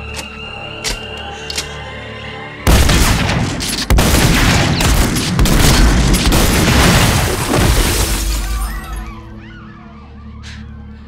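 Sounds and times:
heavy shotgun blasts: 2.7s - 7.4s.

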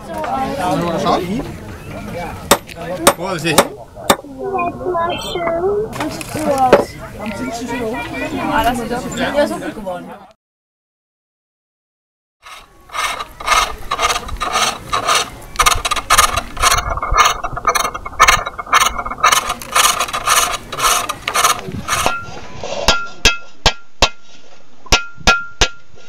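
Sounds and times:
lathe tool scraping wood: 12.4s - 22.5s.

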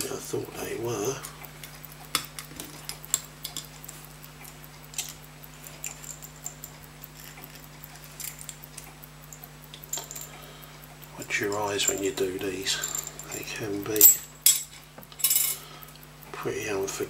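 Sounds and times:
low electrical hum: 0.0s - 17.0s
small metal clicks and scrapes: 0.9s - 10.4s.

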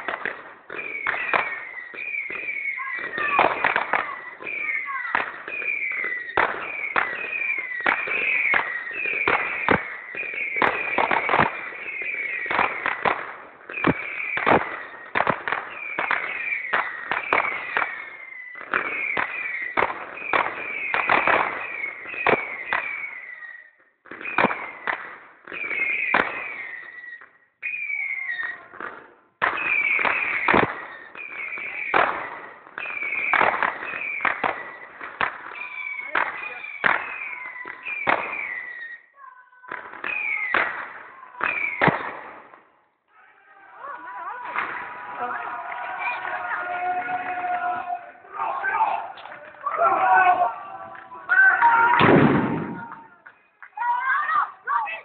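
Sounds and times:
firework crackling: 0.0s - 23.5s, 24.1s - 55.0s
firework bangs: 0.0s - 55.0s
firework whistles falling in pitch: 0.7s - 13.1s, 13.7s - 28.7s, 29.4s - 42.2s.

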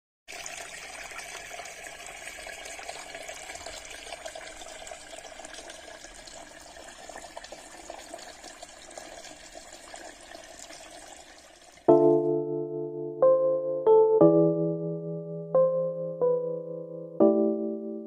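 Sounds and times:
fountain water splashing into basin: 0.3s - 12.1s.

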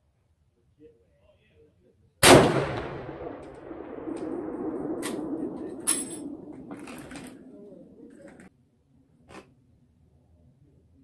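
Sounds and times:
rifle shot: 2.2s - 8.0s
metallic clank: 5.8s - 7.4s.

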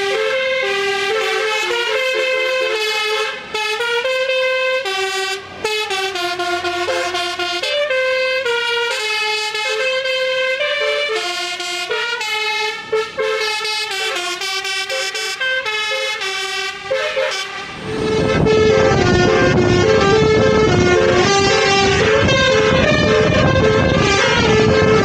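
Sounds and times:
multi-tone musical horn: 0.0s - 25.0s
wind rush on microphone: 17.7s - 25.0s.

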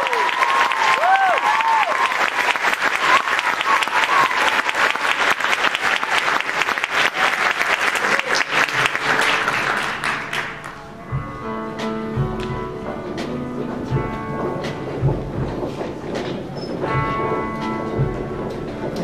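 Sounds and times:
audience applauding: 0.0s - 11.0s
live band sustained chords: 8.4s - 19.0s.

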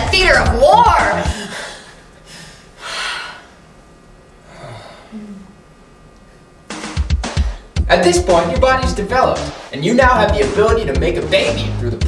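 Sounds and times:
person gasping: 1.2s - 3.6s, 4.5s - 5.5s
low hum from voice: 3.2s - 6.5s.

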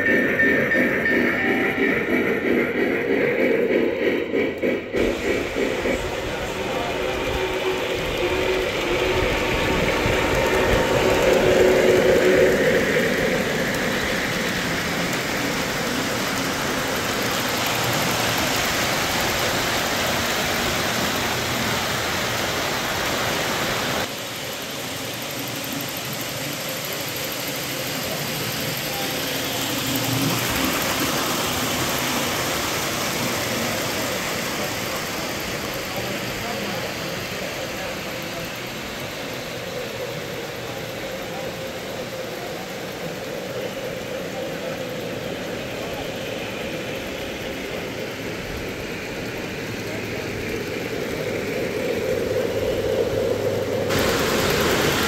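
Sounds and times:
model train wheels rumbling on track: 0.0s - 55.0s.

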